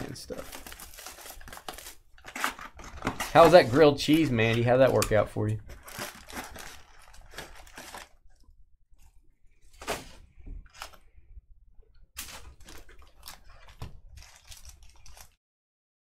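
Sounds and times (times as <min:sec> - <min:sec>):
cards rustling and crinkling: 0:00.0 - 0:08.4, 0:12.2 - 0:15.4.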